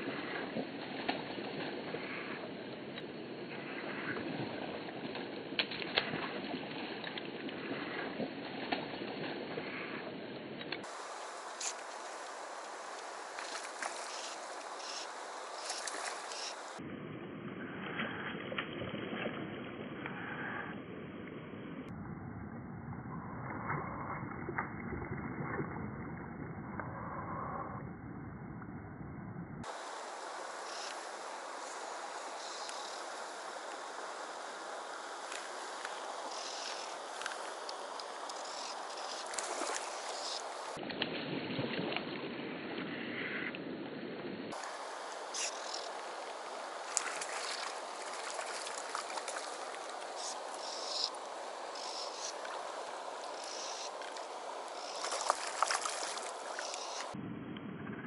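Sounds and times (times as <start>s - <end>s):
shallow river current: 0.0s - 21.9s, 29.6s - 57.2s
fish splashing at surface: 10.8s - 16.8s, 35.1s - 40.8s, 44.5s - 57.2s
faint clicks: 32.4s - 33.1s, 35.3s - 41.0s.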